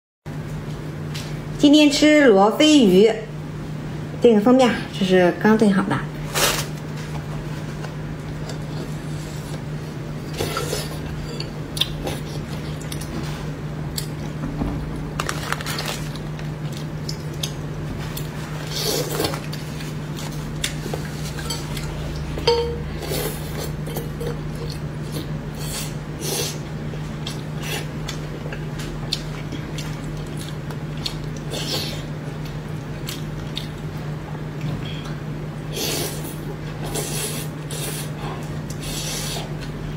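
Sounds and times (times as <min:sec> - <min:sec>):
steady low hum: 0:00.3 - 0:39.9
chopsticks clinking on dishes: 0:21.4 - 0:22.8.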